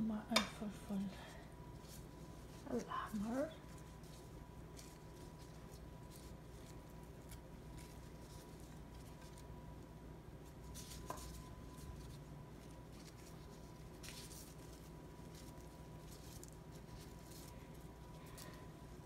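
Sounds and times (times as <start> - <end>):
low steady hum: 0.0 - 19.0
gloved hands rustling: 0.6 - 19.0.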